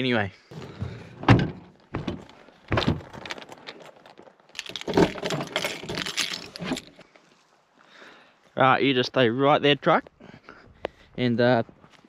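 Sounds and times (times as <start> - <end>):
keys jangling: 4.6 - 6.9.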